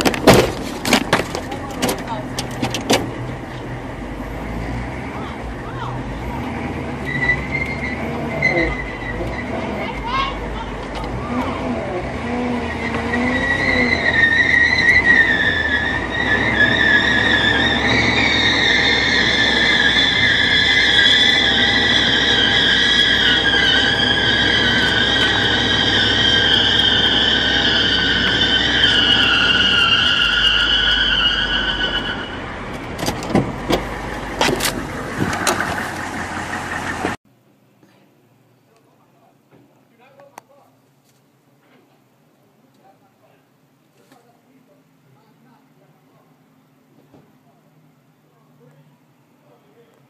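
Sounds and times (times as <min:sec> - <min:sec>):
vehicle noise: 0:00.0 - 0:37.7
high vehicle squeal: 0:01.6 - 0:37.2.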